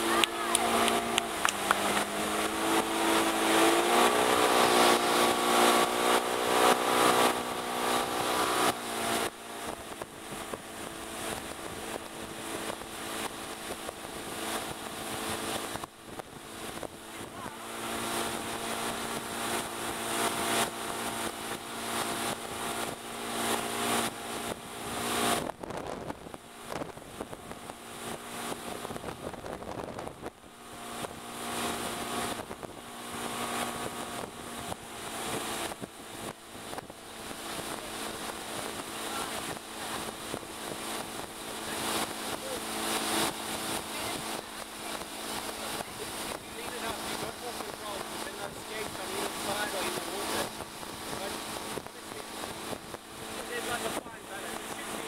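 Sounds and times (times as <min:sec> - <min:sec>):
boat engine under load: 0:00.0 - 0:55.0
rushing water: 0:00.0 - 0:55.0
wind: 0:00.0 - 0:55.0.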